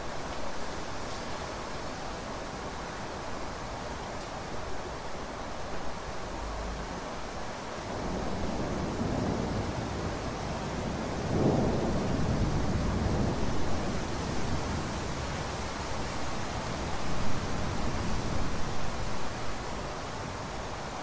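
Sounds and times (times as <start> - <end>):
rain falling: 0.0 - 21.0
low roll of thunder: 7.8 - 15.5.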